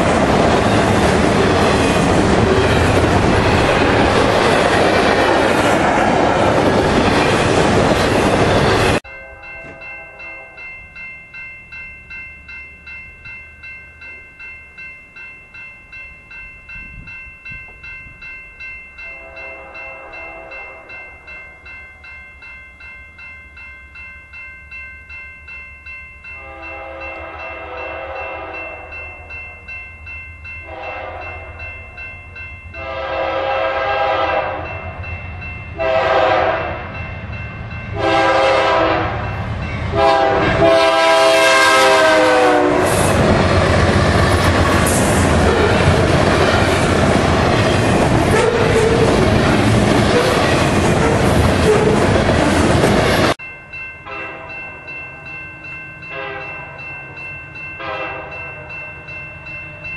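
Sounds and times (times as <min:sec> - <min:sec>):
freight train rattling past: 0:00.0 - 0:11.1, 0:26.3 - 0:59.9
crossing bell ringing: 0:00.0 - 0:59.9
locomotive air horn: 0:19.1 - 0:20.9, 0:26.4 - 0:28.8, 0:30.7 - 0:31.4, 0:32.8 - 0:34.7, 0:35.8 - 0:36.8, 0:38.0 - 0:39.2, 0:39.9 - 0:43.1, 0:57.8 - 0:58.4.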